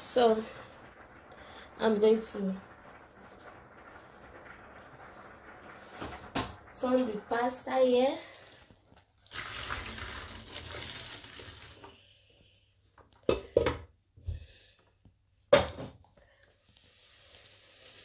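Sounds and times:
water pouring into colander: 0.0 - 12.2, 16.8 - 18.0.

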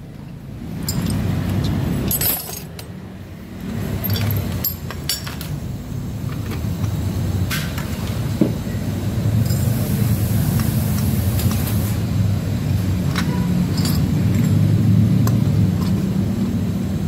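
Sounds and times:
steady low hum: 0.0 - 17.0
metal parts clinking: 0.8 - 3.0, 3.6 - 5.6, 9.4 - 10.0, 13.0 - 16.4.

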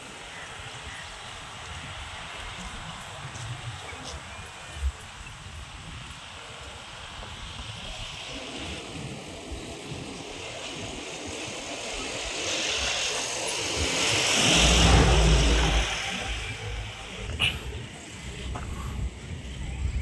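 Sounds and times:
motor vehicle passing: 12.5 - 19.6.

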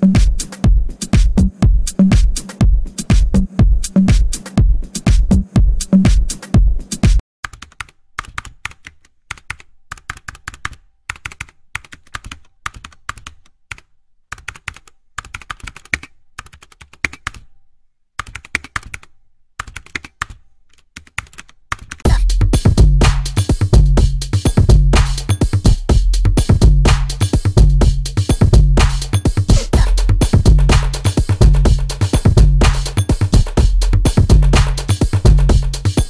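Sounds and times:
electronic dance music: 0.0 - 7.2, 22.1 - 36.0.

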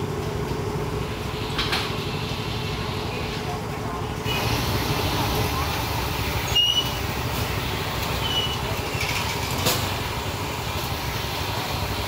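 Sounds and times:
street traffic rumble: 0.0 - 12.0
brief high squeaks: 8.2 - 9.2.

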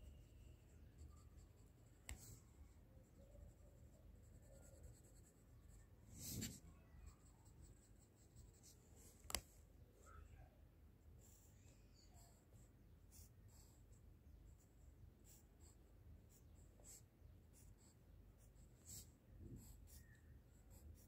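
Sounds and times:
pencil scratching on paper: 3.4 - 8.8, 12.1 - 13.9, 14.6 - 21.0.

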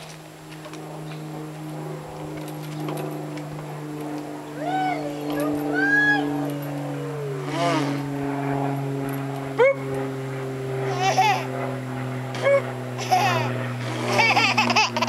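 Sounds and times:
steady low hum: 0.0 - 15.0
toddler babbling and squealing: 10.9 - 11.5, 12.4 - 13.5.

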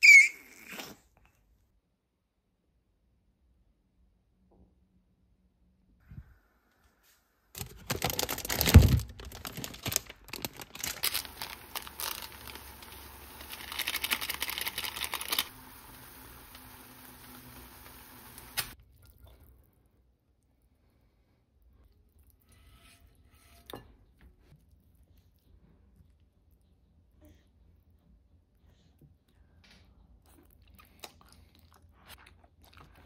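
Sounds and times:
plastic packaging crinkling and tearing: 7.6 - 18.8.

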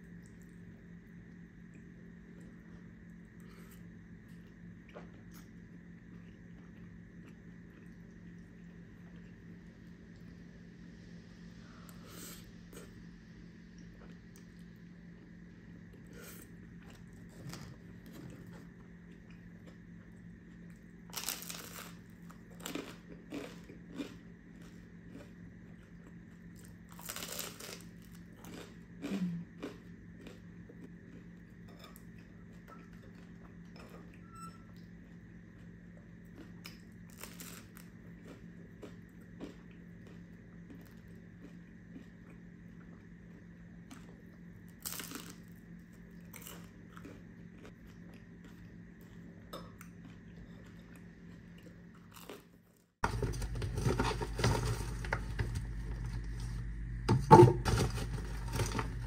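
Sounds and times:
bread crunching when bitten: 20.6 - 31.3, 35.6 - 50.3.

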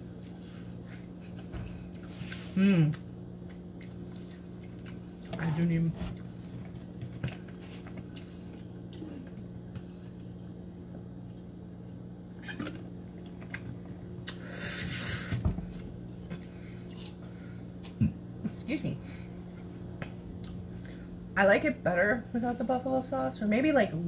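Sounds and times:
chewing: 0.0 - 5.4, 6.1 - 10.4.

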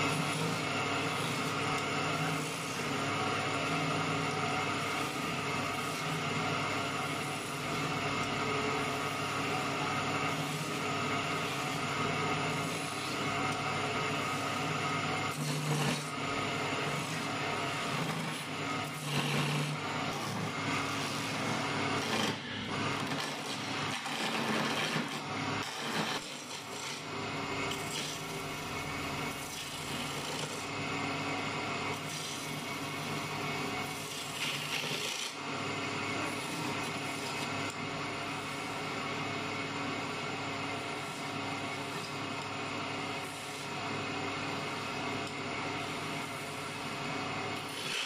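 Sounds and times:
cutting tool scraping wood: 0.0 - 13.6, 14.5 - 27.1, 27.7 - 28.6, 29.3 - 30.7, 31.9 - 37.8, 47.6 - 48.0
wood lathe humming: 0.0 - 48.0.

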